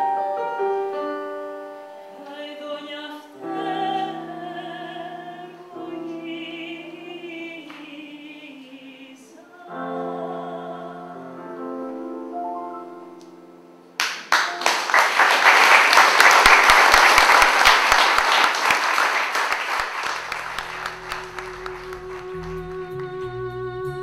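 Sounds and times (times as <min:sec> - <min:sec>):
digital piano chords: 0:00.0 - 0:07.6, 0:09.7 - 0:14.9, 0:20.1 - 0:23.3
audience applause: 0:14.0 - 0:22.8.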